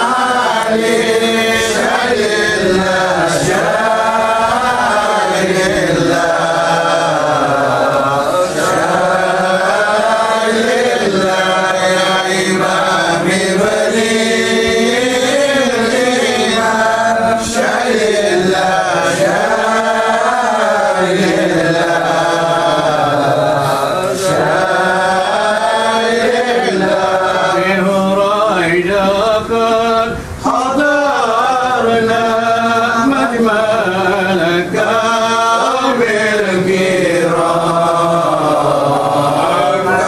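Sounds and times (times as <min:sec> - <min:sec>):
man chanting through a microphone: 0:00.0 - 0:40.0.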